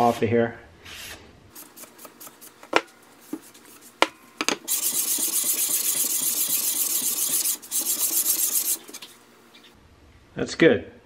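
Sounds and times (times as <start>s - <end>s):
cloth rubbing on sandpaper: 4.7s - 9.1s.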